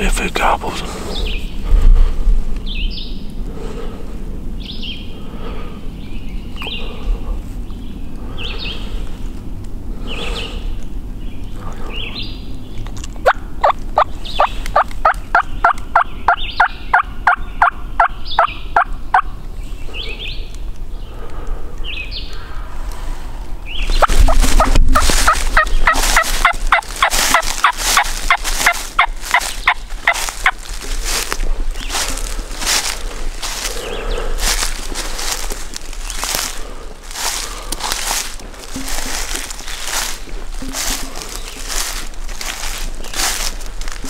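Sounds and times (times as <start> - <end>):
turkey calling: 13.2 - 19.4, 23.7 - 44.0.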